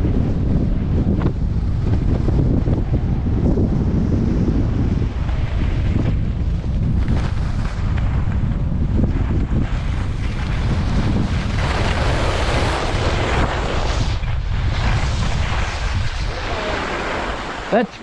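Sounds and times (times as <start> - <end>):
wind buffeting microphone: 0.0 - 18.0
skis hissing on snow: 11.6 - 18.0.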